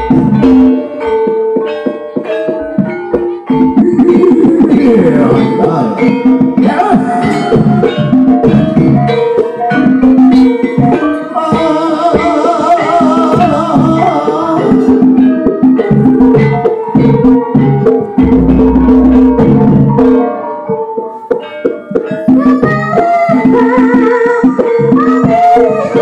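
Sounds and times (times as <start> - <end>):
metallophones struck in pattern: 0.0 - 11.3, 14.7 - 22.9
woman singing: 11.3 - 14.8, 22.3 - 26.0
deep low stroke: 18.2 - 20.0.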